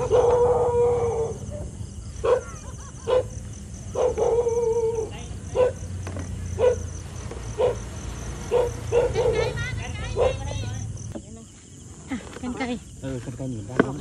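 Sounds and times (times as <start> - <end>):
dog barking: 0.0 - 5.9, 6.6 - 6.9, 7.6 - 10.6
crickets chirping: 0.0 - 14.0.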